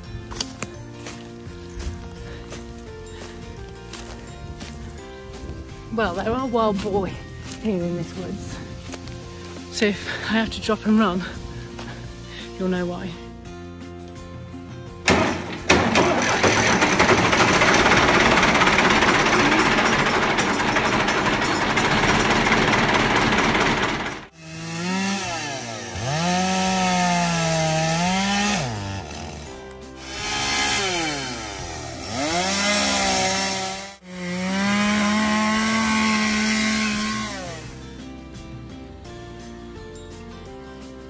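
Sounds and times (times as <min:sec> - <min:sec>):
loud steady noise: 0:15.1 - 0:24.3
chainsaw revving: 0:15.1 - 0:37.8.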